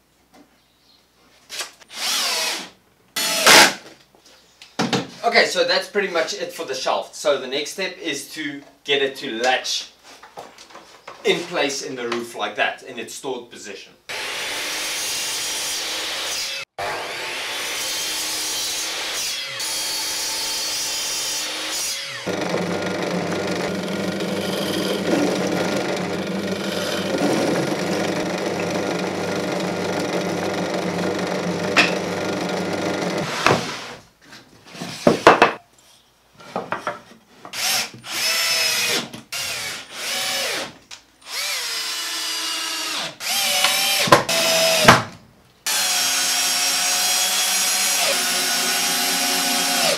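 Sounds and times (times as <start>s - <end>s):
cordless drill driving screws: 1.5s - 3.7s, 22.2s - 33.4s, 41.3s - 44.9s, 45.7s - 49.9s
mitre saw cutting: 14.1s - 33.6s, 42.8s - 45.0s, 45.7s - 49.9s
drill press drilling wood: 22.3s - 33.6s, 42.8s - 45.0s, 45.7s - 49.9s.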